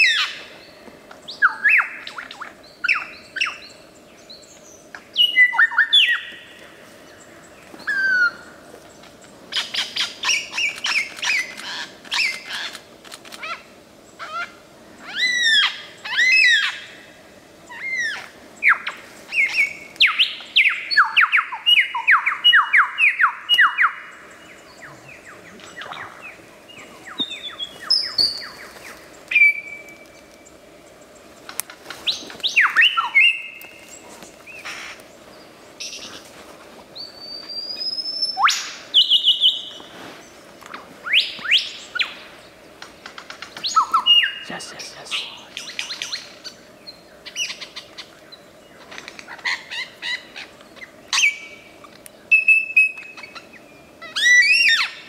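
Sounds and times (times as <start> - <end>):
lyrebird singing: 7.2 - 17.0, 17.7 - 36.2, 41.0 - 55.0.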